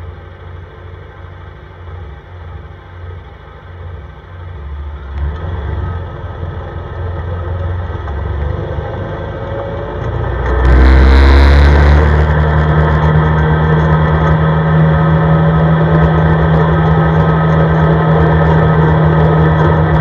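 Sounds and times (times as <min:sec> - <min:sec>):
atv engine accelerating: 0:05.2 - 0:20.0.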